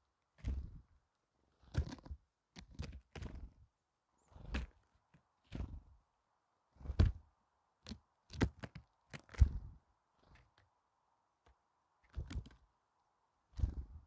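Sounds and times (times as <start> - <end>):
bird wings fluttering: 4.3 - 4.8, 5.4 - 6.0, 12.1 - 12.6, 13.5 - 14.0.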